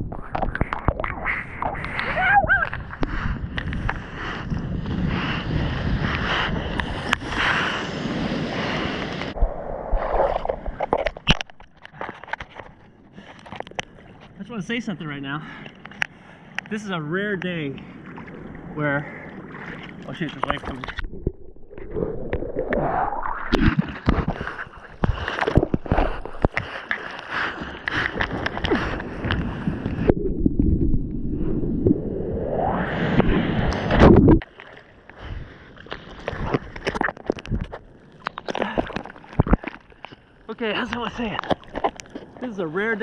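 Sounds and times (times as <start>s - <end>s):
wind on microphone: 0.0s - 11.4s, 27.6s - 34.4s
water sloshing and splashing: 0.0s - 32.0s, 33.0s - 43.0s
rushing water: 16.9s - 30.2s
water slaps: 17.3s - 30.2s.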